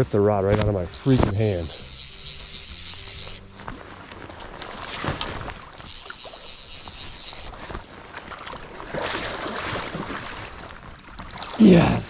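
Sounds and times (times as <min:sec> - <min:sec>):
high wavering whine: 0:00.6 - 0:04.2
fish splashing in water: 0:00.9 - 0:11.6.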